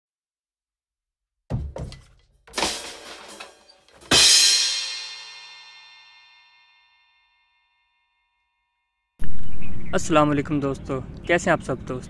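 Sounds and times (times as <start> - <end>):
deep drum hits: 1.5 - 3.4.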